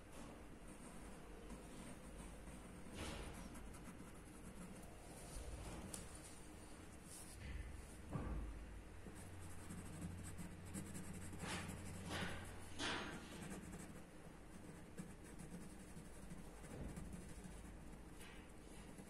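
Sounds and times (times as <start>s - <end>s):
pencil scratching on paper: 0.7s - 4.9s, 9.1s - 19.0s
soft knock: 7.4s - 8.6s.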